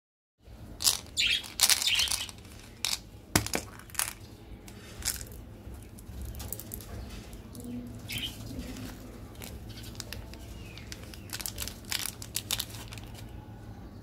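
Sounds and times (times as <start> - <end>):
candies shifting taps: 0.8 - 7.6, 8.8 - 13.3
plastic clicks and rustles: 8.4 - 13.3.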